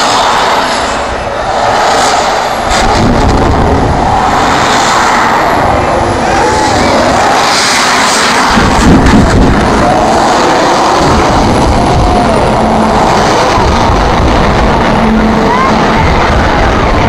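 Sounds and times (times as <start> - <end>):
loud vehicle engines: 0.0 - 17.0.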